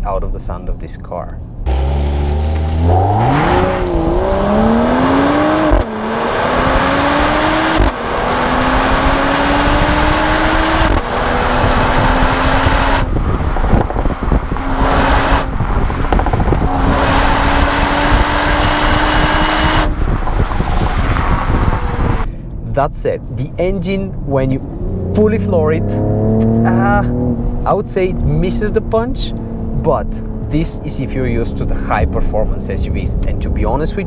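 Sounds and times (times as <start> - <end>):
car engine accelerating hard: 1.6 - 34.0
exhaust crackles and pops: 6.6 - 23.1.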